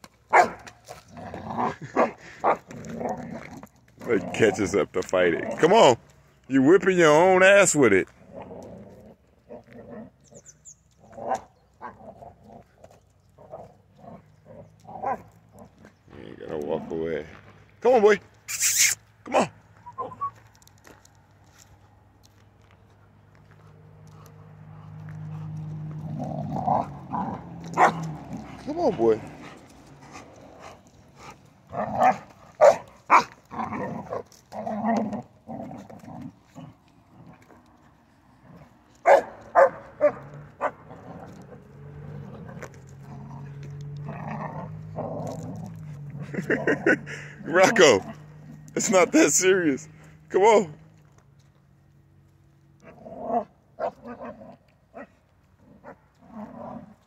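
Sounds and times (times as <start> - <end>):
dog growling and grunting: 0.9 - 4.6, 8.1 - 10.4, 11.0 - 16.9, 25.3 - 32.4, 33.2 - 37.8, 40.0 - 48.8, 52.8 - 57.0.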